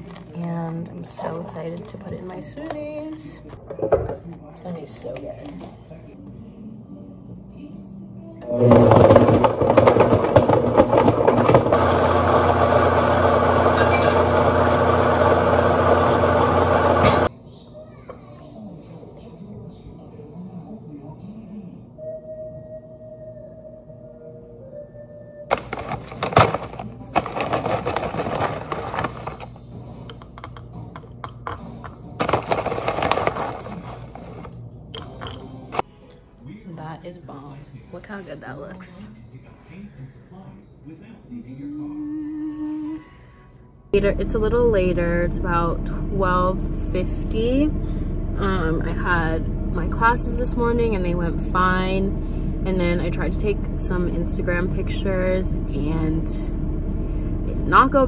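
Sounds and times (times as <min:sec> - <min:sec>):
plastic bag crinkling: 0:00.0 - 0:00.6, 0:25.5 - 0:29.6, 0:32.2 - 0:34.5
blender motor whirring: 0:08.4 - 0:17.3
frozen chunks rattling in blender jar: 0:08.7 - 0:12.6, 0:25.5 - 0:29.6, 0:32.2 - 0:34.5.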